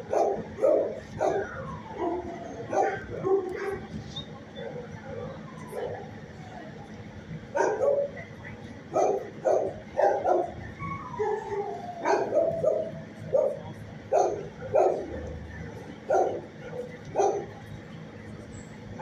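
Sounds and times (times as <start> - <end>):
dogs barking and yipping: 0.0 - 6.1, 7.5 - 8.2, 8.9 - 17.6
dog whining: 10.1 - 13.5.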